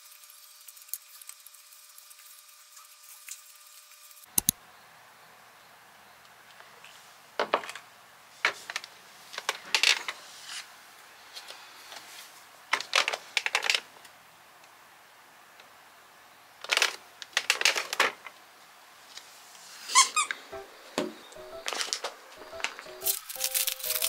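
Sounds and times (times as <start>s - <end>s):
foot stepping on glass scale: 22.9s - 24.0s.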